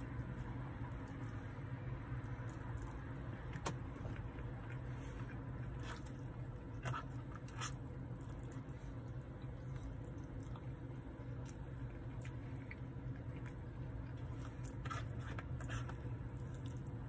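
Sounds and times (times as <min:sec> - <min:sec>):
low hum inside a car: 0:00.0 - 0:17.0
man chewing: 0:02.4 - 0:17.0.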